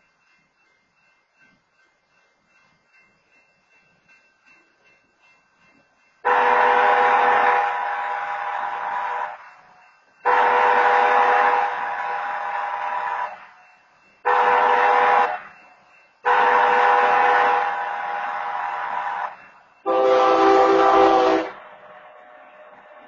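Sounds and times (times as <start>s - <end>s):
locomotive air horn blasts: 6.3s - 9.3s, 10.3s - 13.3s, 14.3s - 15.4s, 16.3s - 18.0s, 19.9s - 21.6s
lower-pitched horn blast: 19.9s - 21.6s.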